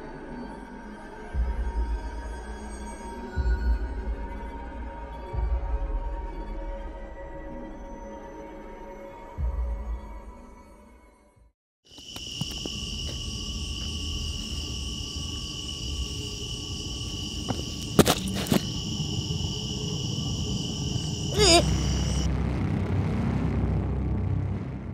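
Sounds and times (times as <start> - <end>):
night insects chorus: 11.9 - 22.3.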